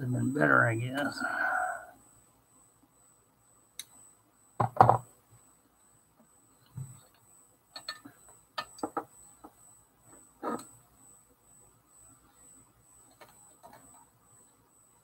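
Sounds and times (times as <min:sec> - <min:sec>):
small clicks and taps: 0:06.2 - 0:09.6, 0:13.1 - 0:14.1.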